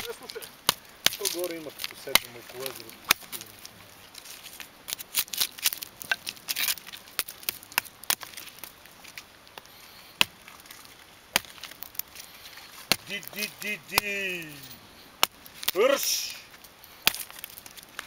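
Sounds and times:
knife chopping wooden branch: 0.0s - 3.4s, 12.8s - 14.2s, 17.0s - 17.5s.

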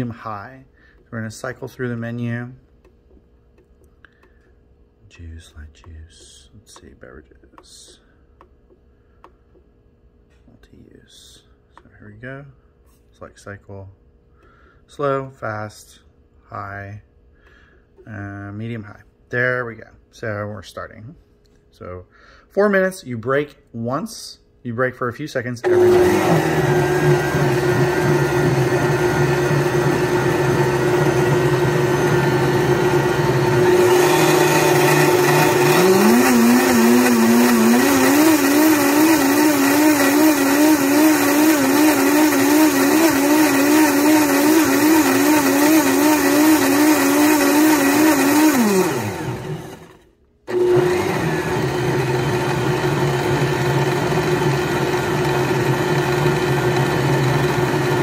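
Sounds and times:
blender motor running: 25.6s - 58.0s.

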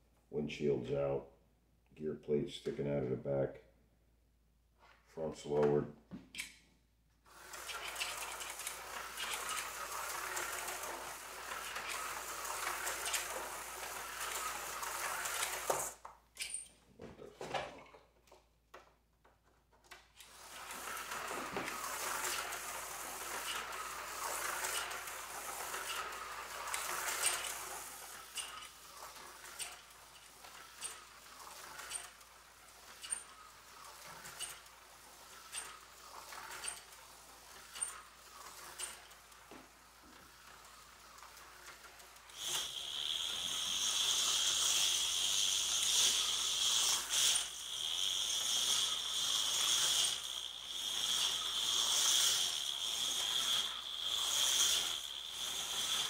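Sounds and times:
slot car motor whirring: 7.3s - 16.0s, 20.1s - 56.0s.

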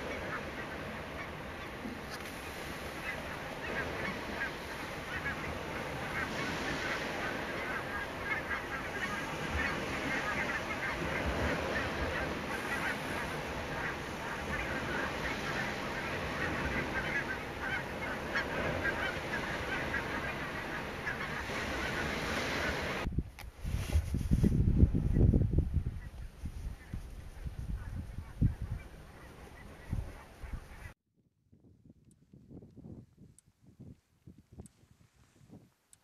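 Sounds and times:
geese honking: 0.0s - 23.1s, 27.8s - 31.0s.

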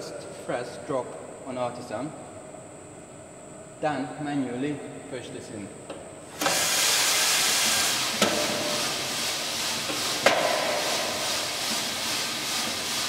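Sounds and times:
coffee beans pouring into drum: 6.4s - 13.0s
sharp knocks: 10.2s - 11.1s.

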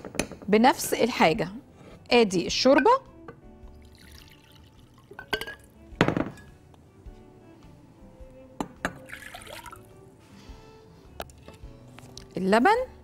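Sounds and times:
soft background music: 0.0s - 13.0s
broth pouring into cup: 3.8s - 5.2s, 9.0s - 9.9s
cup and utensils clinking: 5.0s - 6.6s.

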